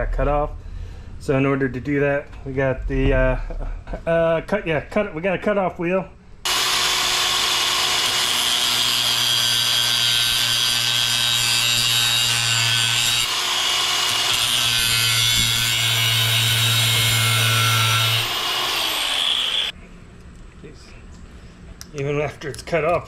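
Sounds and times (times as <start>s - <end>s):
angle grinder cutting metal: 6.5s - 19.7s.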